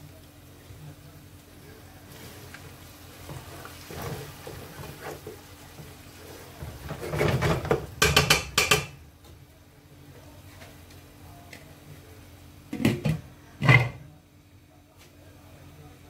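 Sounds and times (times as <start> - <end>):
wooden spoon stirring thick sauce: 1.6 - 8.4
spoon knocking against pot: 7.4 - 9.0.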